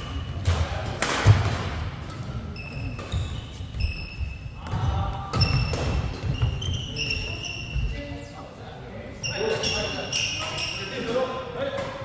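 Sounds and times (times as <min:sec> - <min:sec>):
racket hitting shuttlecock: 0:00.4 - 0:01.7
shoes squeaking on wooden floor: 0:02.5 - 0:04.6, 0:05.4 - 0:08.1.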